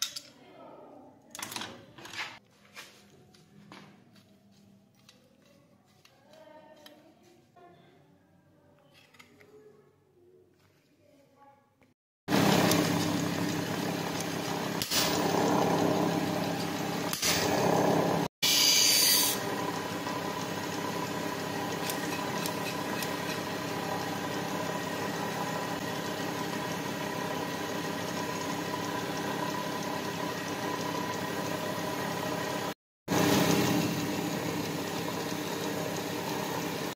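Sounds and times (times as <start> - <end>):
grinding wheel motor hum: 12.3 - 36.9.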